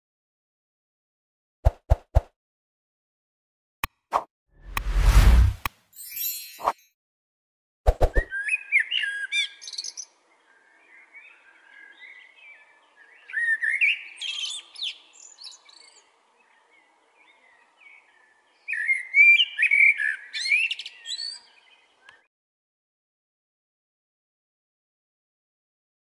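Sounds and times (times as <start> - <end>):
blackbird singing: 8.2 - 22.3.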